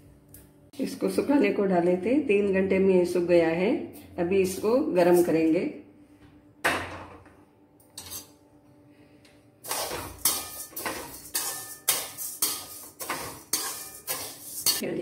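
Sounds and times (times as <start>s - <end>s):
spoon scraping rice in pan: 9.7s - 14.8s.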